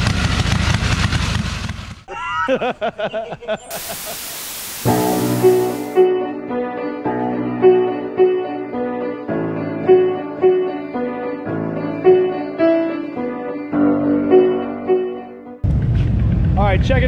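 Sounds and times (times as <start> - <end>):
instrumental melody over chords: 4.9 - 15.6.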